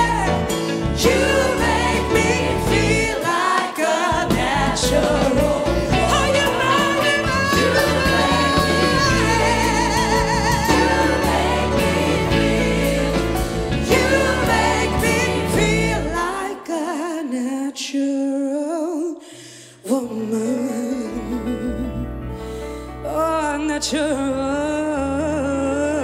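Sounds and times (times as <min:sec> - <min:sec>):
gospel choir singing: 0:00.0 - 0:18.0
woman singing with vibrato: 0:01.0 - 0:11.8.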